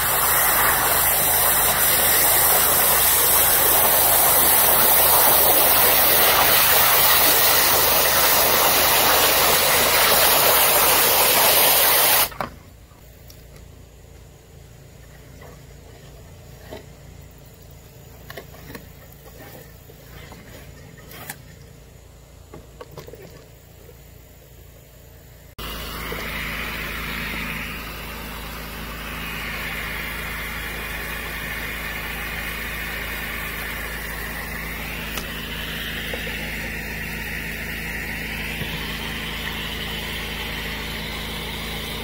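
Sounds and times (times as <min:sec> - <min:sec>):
pressure washer spraying: 0:00.0 - 0:12.4, 0:25.6 - 0:42.0.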